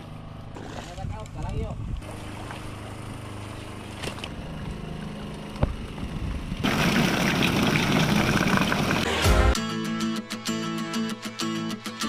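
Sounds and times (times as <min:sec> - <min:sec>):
boat engine running: 0:00.0 - 0:09.1.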